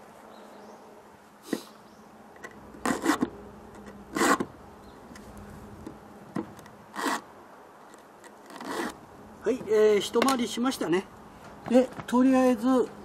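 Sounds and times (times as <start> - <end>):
file rasping on chain: 2.8 - 3.3, 4.1 - 4.5, 6.9 - 7.2, 8.4 - 9.0.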